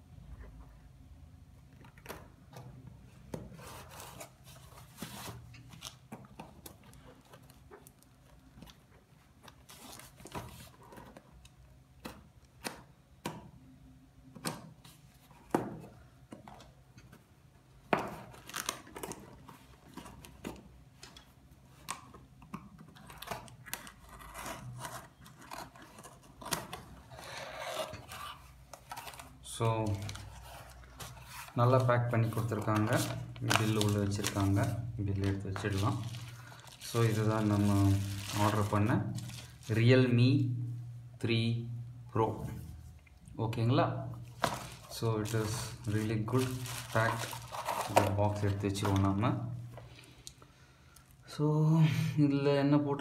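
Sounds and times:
cardboard and tape tearing: 0:23.0 - 0:31.6, 0:44.4 - 0:49.0.

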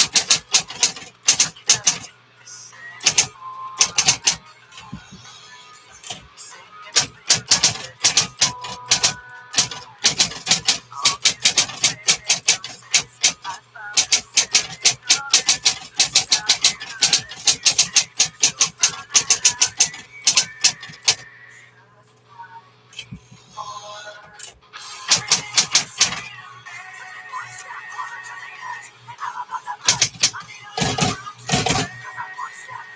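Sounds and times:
fast typewriter typing: 0:00.0 - 0:02.1, 0:03.0 - 0:04.4, 0:06.9 - 0:21.2, 0:25.1 - 0:26.3, 0:29.9 - 0:32.0
typewriter carriage return: 0:00.0 - 0:02.1, 0:03.0 - 0:04.9, 0:06.9 - 0:21.2, 0:24.3 - 0:26.3, 0:29.9 - 0:32.0
typewriter motor hum: 0:00.0 - 0:02.1, 0:03.0 - 0:04.9, 0:06.9 - 0:21.2, 0:25.1 - 0:26.3, 0:29.9 - 0:32.0.

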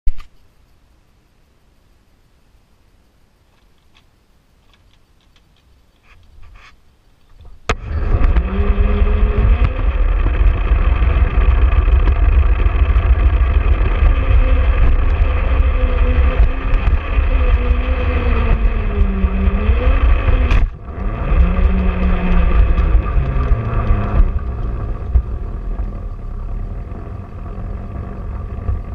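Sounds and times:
wheels rumbling on rails: 0:07.4 - 0:28.9
electric motor and gears whining: 0:07.7 - 0:28.9.

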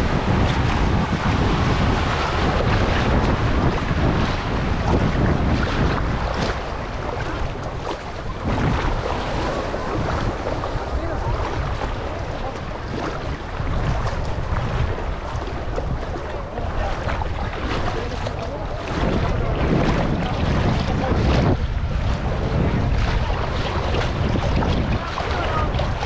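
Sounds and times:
sea water lapping: 0:00.0 - 0:26.0
wind buffeting microphone: 0:00.0 - 0:26.0.

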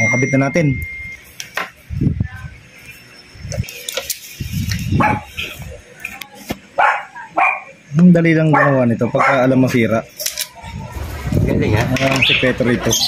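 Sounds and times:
dog barking: 0:05.0 - 0:05.4, 0:06.8 - 0:07.8, 0:08.4 - 0:09.6
small parts clicking and tapping: 0:10.2 - 0:10.6.

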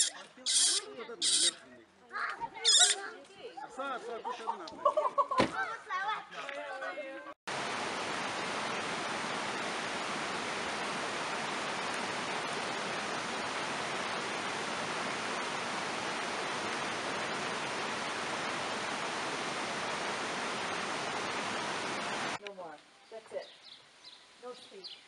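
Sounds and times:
water flowing over rocks: 0:07.5 - 0:22.4.

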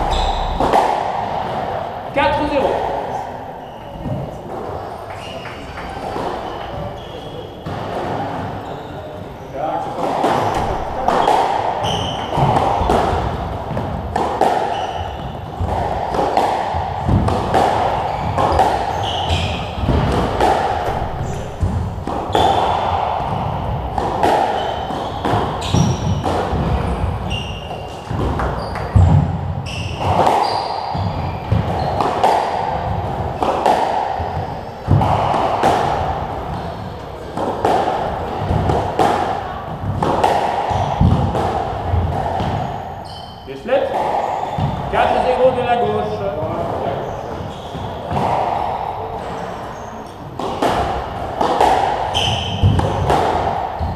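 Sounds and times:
shoes squeaking on wooden floor: 0:00.0 - 0:00.8, 0:10.4 - 0:13.0, 0:14.6 - 0:15.6, 0:18.0 - 0:20.0, 0:24.5 - 0:32.0, 0:42.4 - 0:43.5, 0:46.9 - 0:48.1, 0:52.1 - 0:52.9
squash ball smacking: 0:00.0 - 0:02.6, 0:10.0 - 0:43.0, 0:43.9 - 0:45.7, 0:47.3 - 0:49.4, 0:50.2 - 0:53.9.

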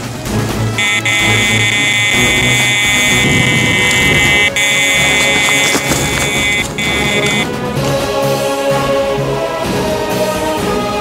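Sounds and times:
bite alarm high-pitched tone: 0:00.8 - 0:07.5.

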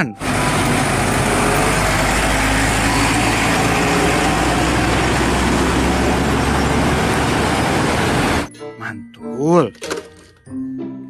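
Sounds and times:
truck engine running: 0:00.0 - 0:08.5
road and tyre noise: 0:00.1 - 0:08.5.

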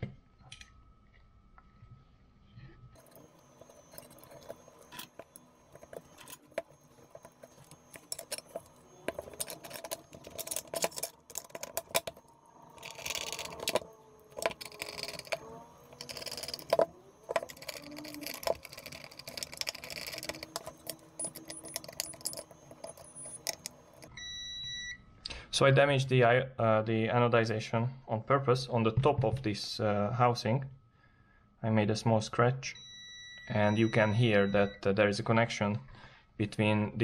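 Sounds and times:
metal parts clicking and clinking: 0:03.0 - 0:24.1.

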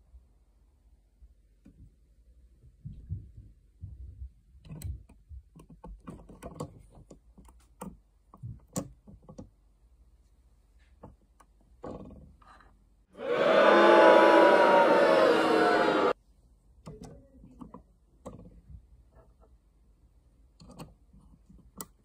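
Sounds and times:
small plastic parts clicking: 0:04.5 - 0:09.6, 0:20.5 - 0:22.0.

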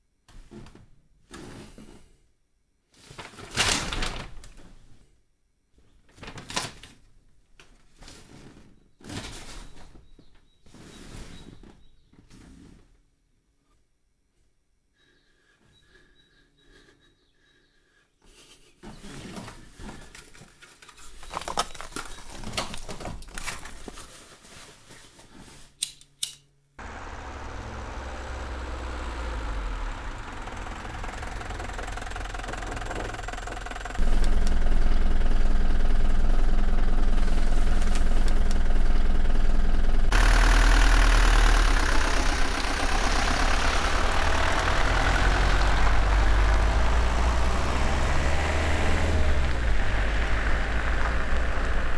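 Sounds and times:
van engine running: 0:26.8 - 0:51.9.

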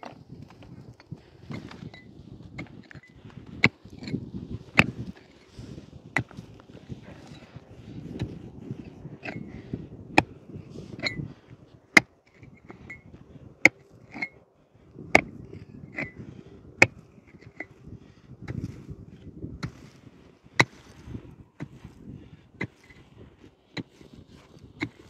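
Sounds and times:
pickaxe striking stony soil: 0:03.6 - 0:05.2, 0:09.2 - 0:09.6, 0:13.6 - 0:14.4, 0:15.1 - 0:16.2, 0:18.4 - 0:18.9, 0:19.6 - 0:20.0, 0:20.6 - 0:22.0, 0:22.6 - 0:23.1, 0:23.8 - 0:25.0.

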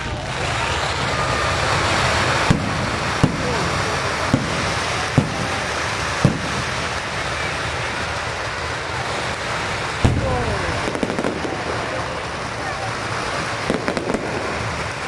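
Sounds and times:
fireworks booming: 0:00.0 - 0:15.0
steady hiss: 0:00.0 - 0:15.0.

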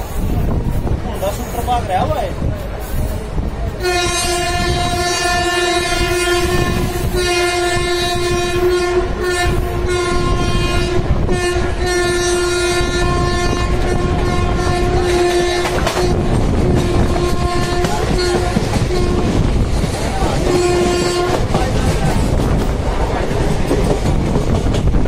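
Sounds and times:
train clattering on tracks: 0:00.0 - 0:25.0
locomotive horn blasts: 0:03.8 - 0:19.4, 0:20.4 - 0:21.6.

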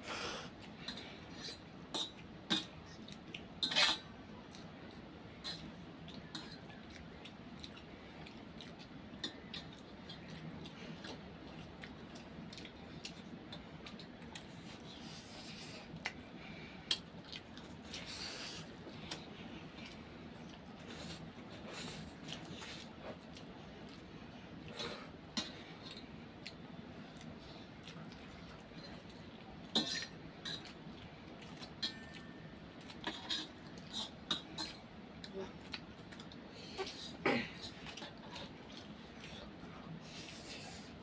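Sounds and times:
cutlery clinking on steel plates: 0:03.6 - 0:04.0, 0:31.7 - 0:32.4.

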